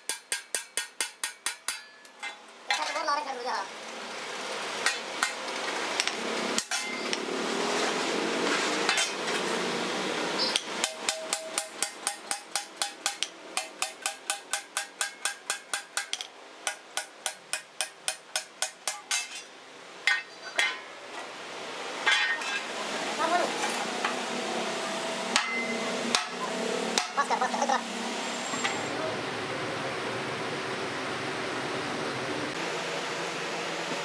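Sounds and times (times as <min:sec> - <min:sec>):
hammer striking metal on anvil: 0:00.0 - 0:03.0, 0:06.0 - 0:07.2, 0:10.5 - 0:21.0, 0:22.0 - 0:22.7, 0:25.3 - 0:27.2.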